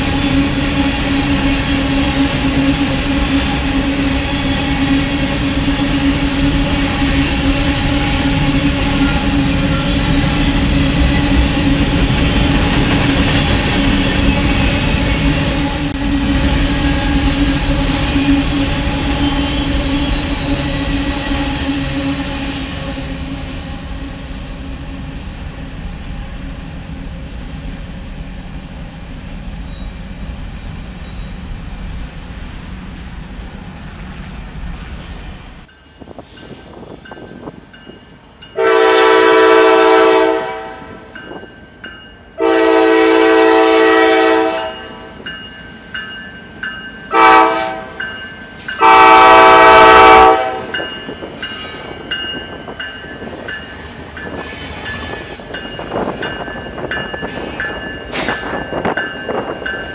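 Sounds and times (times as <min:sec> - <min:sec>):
freight train rumbling past: 0:00.0 - 0:59.9
locomotive air horn blasts: 0:38.6 - 0:41.0, 0:42.4 - 0:45.1, 0:47.1 - 0:48.0, 0:48.8 - 0:50.8.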